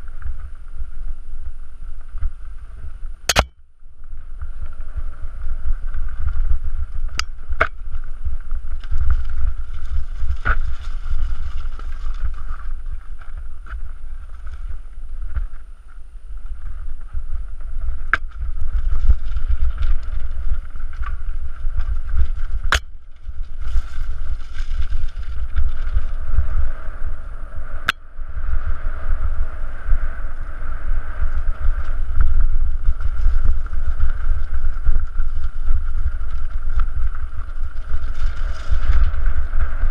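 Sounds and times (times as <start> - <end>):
wind rumbling on microphone: 0.0 - 39.9
bike rattling on loose stones: 4.4 - 27.2, 31.2 - 39.9.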